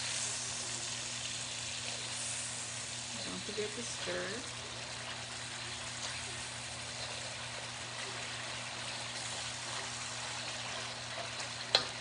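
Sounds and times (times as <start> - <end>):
sauce sizzling in a wok: 0.0 - 12.0
wooden spoon stirring: 9.2 - 11.8.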